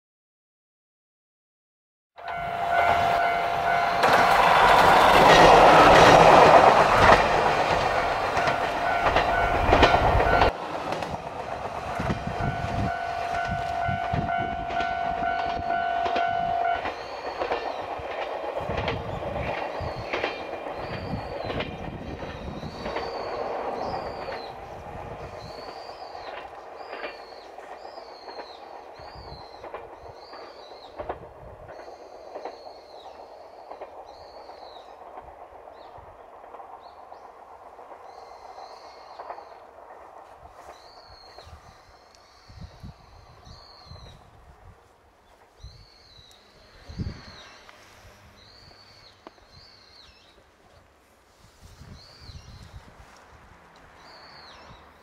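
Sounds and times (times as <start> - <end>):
crossing warning bell ringing: 2.2 - 10.6, 11.7 - 25.2
diesel railcar passing: 2.2 - 55.0.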